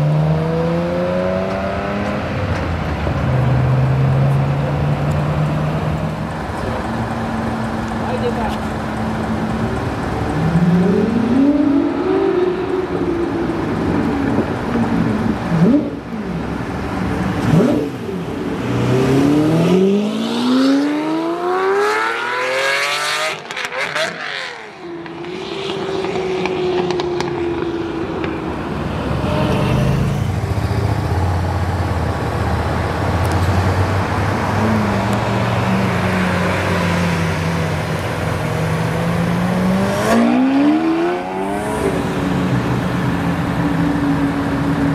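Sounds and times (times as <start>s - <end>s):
sports car engine revving and accelerating: 0.0s - 2.5s, 9.2s - 27.9s, 32.4s - 44.9s.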